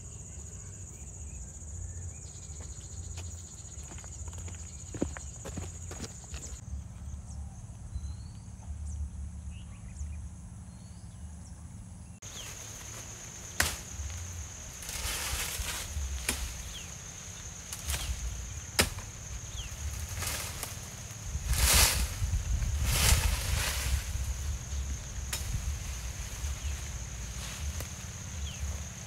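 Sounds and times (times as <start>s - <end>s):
leaves and twigs swishing: 12.2s - 29.0s
machete chopping branches: 12.3s - 29.0s.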